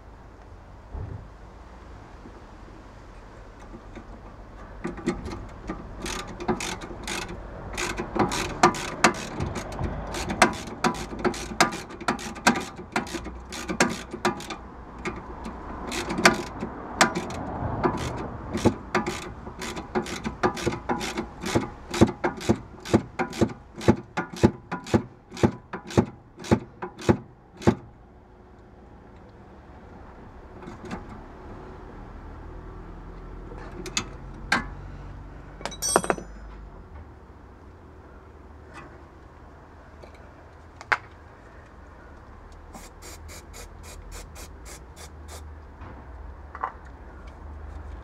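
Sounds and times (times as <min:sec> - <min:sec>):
socket ratchet clicking: 0:05.0 - 0:27.1.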